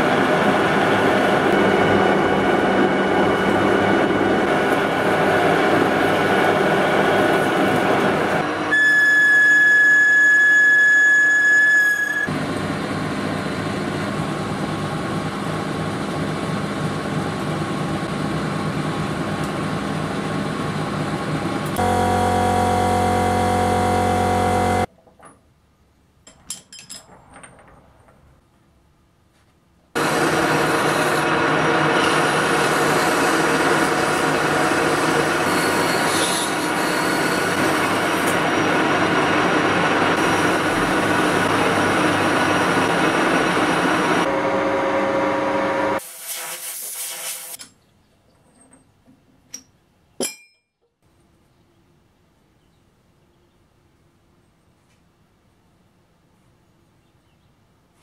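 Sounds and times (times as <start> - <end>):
metal lathe turning steel: 30.0 - 44.3.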